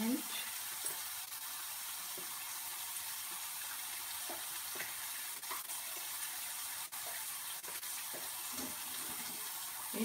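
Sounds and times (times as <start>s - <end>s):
food sizzling in hot oil: 0.0s - 10.0s.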